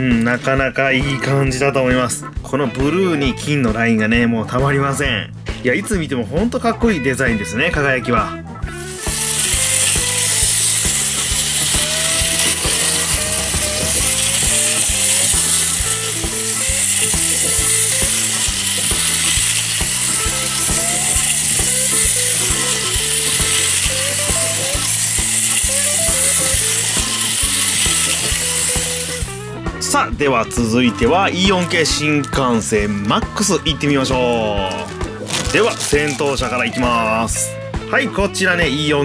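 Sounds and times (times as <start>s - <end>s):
wind-up toy train whirring: 8.7s - 29.4s, 31.3s - 37.2s.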